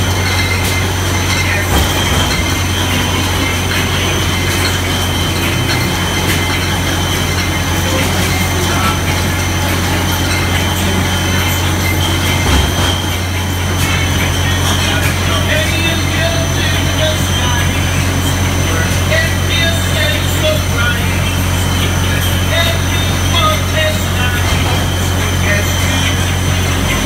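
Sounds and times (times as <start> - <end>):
bottles clicking on conveyor: 0.0 - 27.0
machine hum: 0.0 - 27.0.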